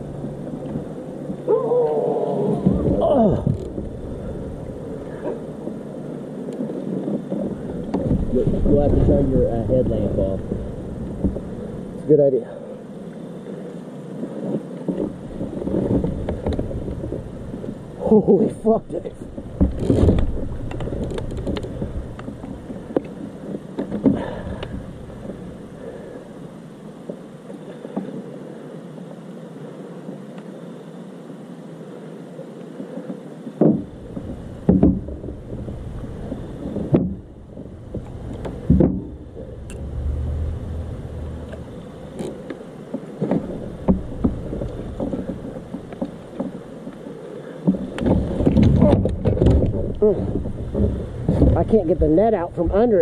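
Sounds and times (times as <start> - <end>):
low rumble: 0.0 - 5.9, 7.5 - 12.1, 33.9 - 42.8
light clicks against hull: 3.4 - 5.8, 6.4 - 11.5, 13.1 - 17.8, 18.9 - 26.2, 27.0 - 28.3, 32.6 - 39.9, 41.1 - 51.8
knocks and bumps on kayak: 7.2 - 11.5, 33.6 - 46.6, 47.6 - 51.9
heavy thud in kayak: 33.6 - 35.8, 36.7 - 41.8.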